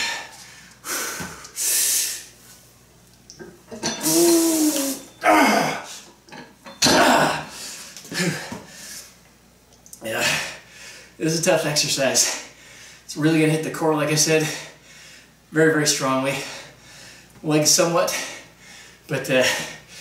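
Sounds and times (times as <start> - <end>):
man breathing hard: 0.0 - 2.3, 10.2 - 11.2, 14.4 - 15.4, 16.3 - 17.3, 18.1 - 20.0
man groaning: 3.9 - 6.0, 6.8 - 7.5.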